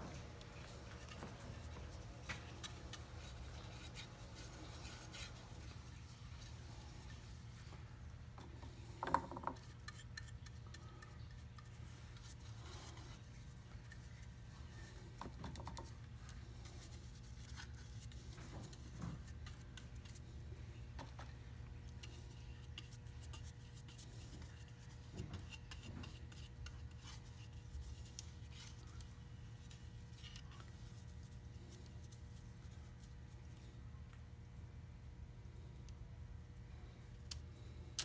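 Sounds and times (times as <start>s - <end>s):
brush rubbing and scratching: 0.0s - 7.8s, 9.6s - 15.2s, 15.8s - 20.5s, 22.0s - 33.6s.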